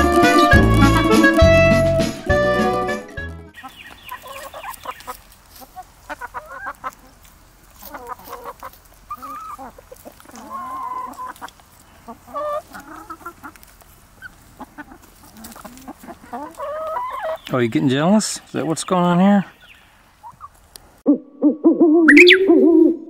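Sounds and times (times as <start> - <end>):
hens clucking: 0.0 - 3.0, 3.6 - 20.9
jazzy music: 0.0 - 3.6.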